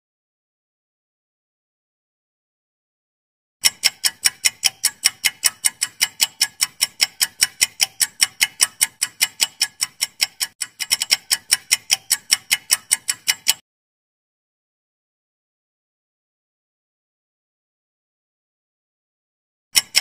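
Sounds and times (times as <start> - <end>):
clock ticking: 3.6 - 13.6, 19.8 - 20.0.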